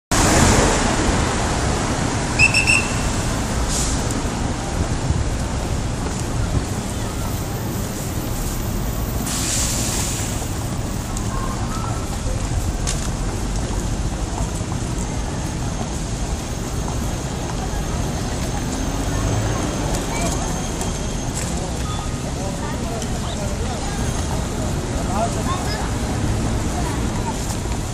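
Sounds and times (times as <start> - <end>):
traffic rumble: 0.1 - 27.9
short high pips: 2.4 - 3.2
burst of hiss: 9.2 - 10.4.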